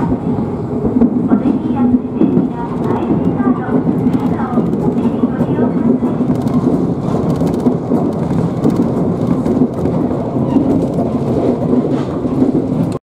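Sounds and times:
train wheels rumbling on track: 0.0s - 13.0s.

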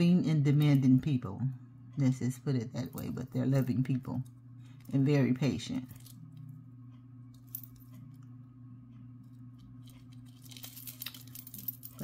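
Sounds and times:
steady low hum: 0.0s - 12.0s
metal charms clicking: 9.8s - 12.0s.

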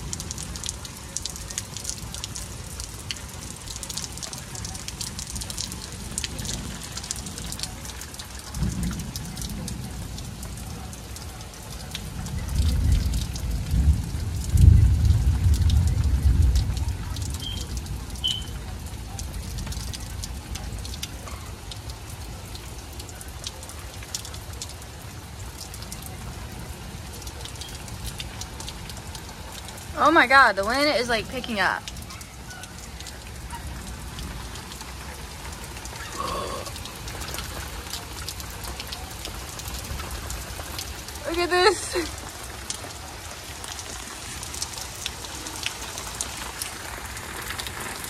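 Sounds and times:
rain patter: 0.0s - 48.0s
thunder rumble: 8.5s - 10.6s, 12.0s - 20.1s.

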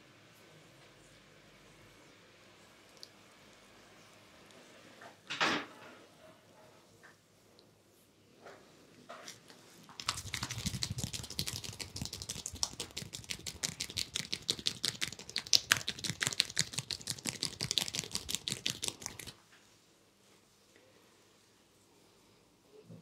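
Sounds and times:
fingers slapping a cheek: 10.0s - 19.4s.

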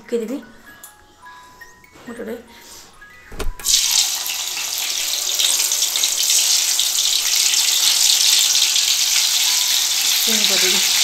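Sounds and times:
food deep-frying in hot oil: 3.6s - 11.0s.

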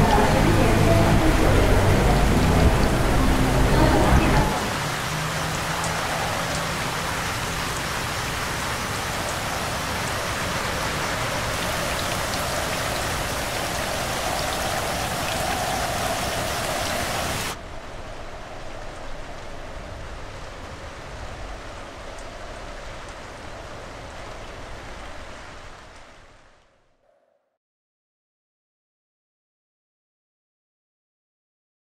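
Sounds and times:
heavy rain on street: 0.0s - 26.7s
muffled rain heard indoors: 0.0s - 27.1s.

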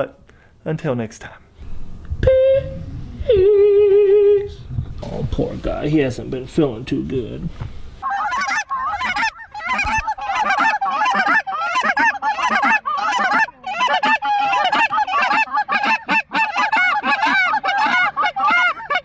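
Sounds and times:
geese honking: 8.0s - 19.0s.

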